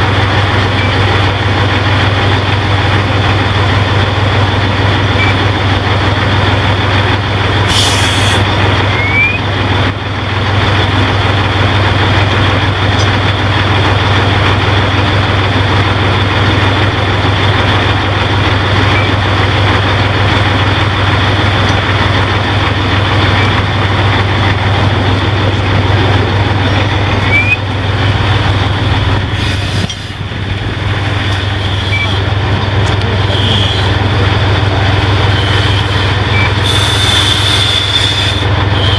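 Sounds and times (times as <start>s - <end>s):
diesel engine humming: 0.0s - 38.9s
air hisses: 7.7s - 8.4s, 36.6s - 38.9s.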